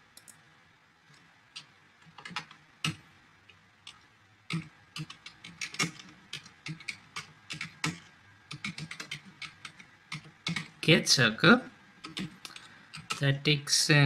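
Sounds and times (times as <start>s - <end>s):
typing on a computer keyboard: 1.6s - 3.0s, 3.8s - 10.8s, 12.0s - 13.3s.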